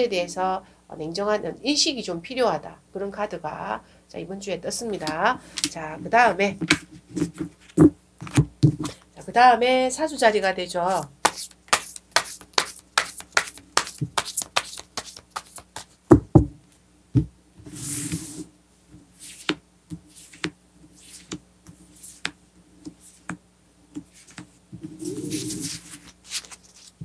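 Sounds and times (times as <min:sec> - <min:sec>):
cards tapping and clicking: 0:11.2 - 0:16.2
cards sliding swish: 0:17.7 - 0:18.5, 0:19.2 - 0:23.4, 0:24.1 - 0:26.9.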